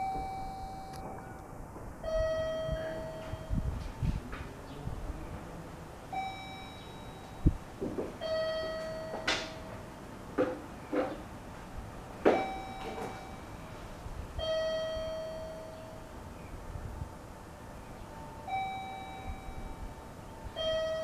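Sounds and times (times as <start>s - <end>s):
two-note electronic ding-dong chime: 0.0s - 1.4s, 2.0s - 3.7s, 6.2s - 7.6s, 8.2s - 9.8s, 12.3s - 13.5s, 14.4s - 16.1s, 18.4s - 19.8s, 20.6s - 21.0s.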